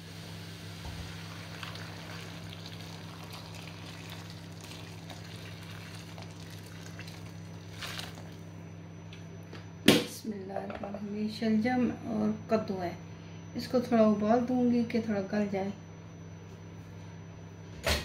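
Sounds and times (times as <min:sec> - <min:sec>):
water pouring into a pan: 0:01.1 - 0:08.4.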